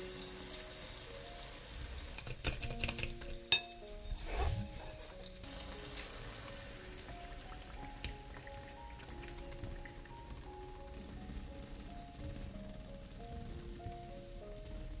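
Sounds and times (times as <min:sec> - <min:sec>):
food sizzling in a pan: 0:00.0 - 0:13.6
ringing clink: 0:03.5 - 0:03.8.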